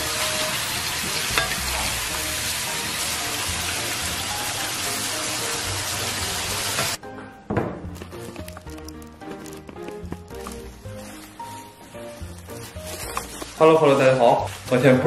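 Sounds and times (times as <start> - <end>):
food sizzling in a wok: 0.0 - 7.0
faint background music: 0.0 - 15.0.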